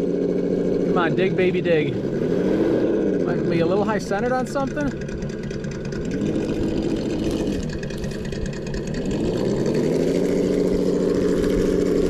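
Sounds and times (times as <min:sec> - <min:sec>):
simulated engine revving from speaker: 0:00.8 - 0:04.9, 0:06.0 - 0:08.1, 0:09.0 - 0:12.0.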